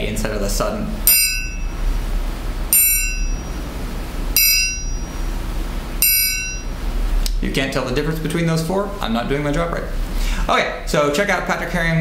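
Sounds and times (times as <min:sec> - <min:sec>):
triangle struck and damped: 0:01.0 - 0:02.0, 0:02.7 - 0:05.4, 0:06.0 - 0:06.8.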